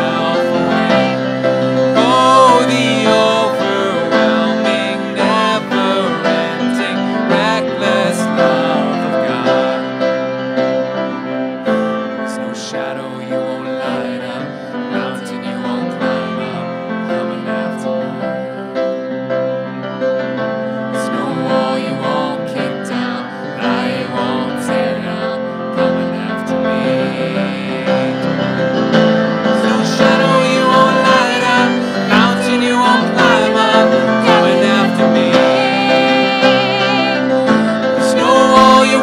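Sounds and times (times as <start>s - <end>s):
person singing: 0.0s - 10.4s, 11.7s - 19.1s, 20.9s - 39.0s
grand piano: 0.0s - 39.0s
violin: 21.0s - 39.0s.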